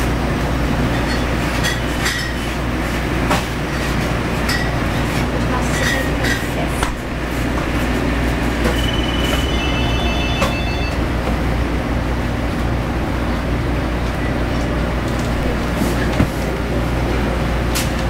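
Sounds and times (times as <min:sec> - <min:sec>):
machinery hum and rumble: 0:00.0 - 0:18.0
high electronic tones: 0:08.6 - 0:11.5.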